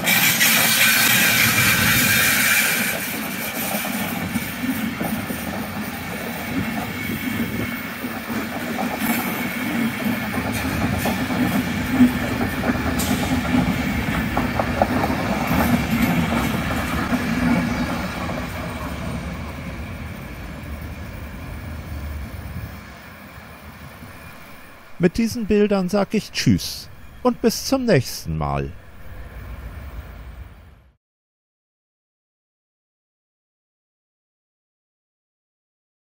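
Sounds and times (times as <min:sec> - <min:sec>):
train wheels clicking over rail joints: 0:00.0 - 0:19.0.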